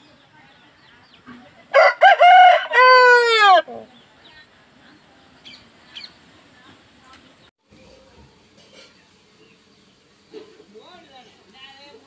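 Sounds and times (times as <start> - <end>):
rooster crowing: 1.7 - 3.9.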